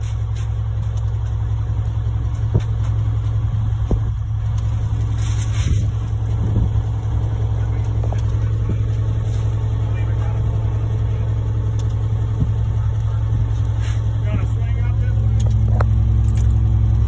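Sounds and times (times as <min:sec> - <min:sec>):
diesel engine droning: 0:00.0 - 0:17.0.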